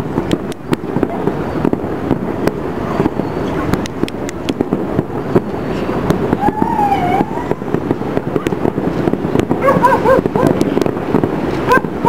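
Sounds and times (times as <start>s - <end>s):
fireworks popping and crackling: 0.0s - 12.0s
dog barking: 9.6s - 10.6s, 11.7s - 12.0s.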